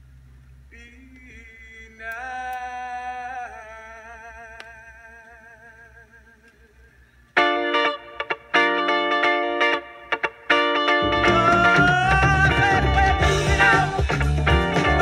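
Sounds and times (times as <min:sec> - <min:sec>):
distorted electric guitar chords: 0:07.4 - 0:15.0.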